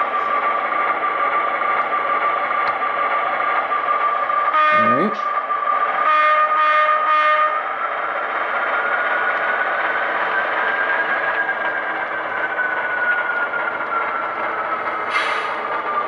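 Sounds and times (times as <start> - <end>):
model locomotive engine drone: 0.0 - 16.0
locomotive horn blast: 4.5 - 5.3, 6.0 - 7.6.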